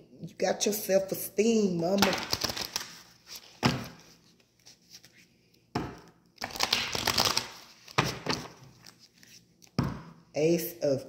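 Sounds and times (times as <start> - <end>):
cards rustling and slapping: 1.9 - 5.2, 6.4 - 9.8
cards knocking: 5.8 - 8.6.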